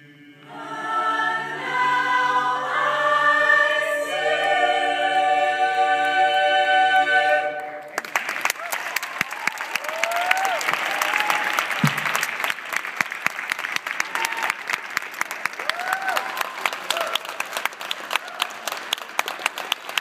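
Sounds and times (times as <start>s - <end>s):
audience applauding: 7.8s - 20.0s
people whooping: 8.5s - 11.8s, 14.0s - 14.7s, 15.6s - 17.4s, 18.1s - 18.7s.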